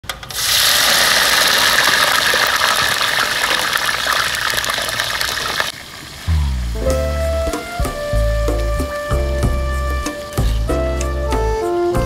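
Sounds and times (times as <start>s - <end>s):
hot oil sizzling and bubbling: 0.3s - 10.9s
music: 6.3s - 12.0s.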